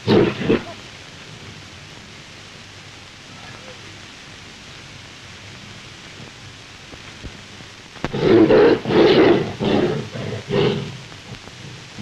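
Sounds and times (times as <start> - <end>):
tiger roaring and snarling: 0.0 - 0.8, 8.1 - 11.0
film soundtrack hiss: 0.0 - 12.0.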